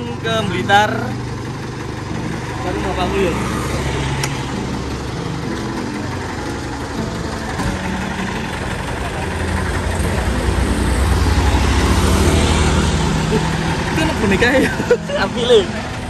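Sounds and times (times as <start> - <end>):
truck engine humming: 0.0 - 16.0.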